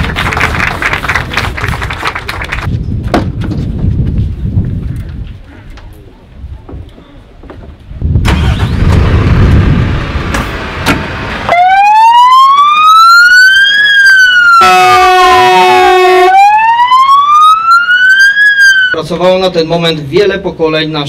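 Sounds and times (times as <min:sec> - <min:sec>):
fire engine siren wailing: 0:11.4 - 0:19.0
horn blast: 0:14.6 - 0:16.4.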